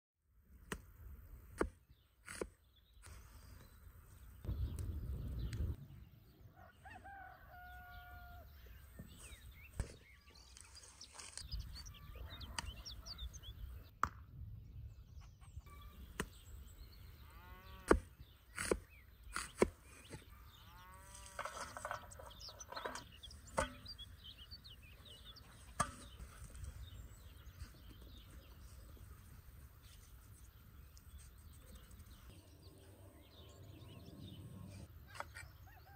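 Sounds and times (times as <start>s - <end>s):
rooster crowing: 6.5s - 8.5s, 35.6s - 35.9s.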